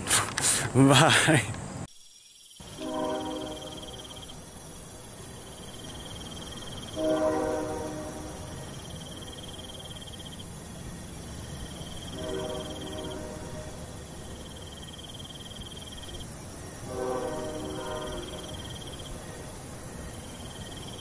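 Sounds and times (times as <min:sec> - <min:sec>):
insects trilling: 0:00.4 - 0:21.0
low horn-like tone: 0:02.6 - 0:04.4, 0:06.7 - 0:08.8, 0:11.9 - 0:14.5, 0:16.8 - 0:18.7.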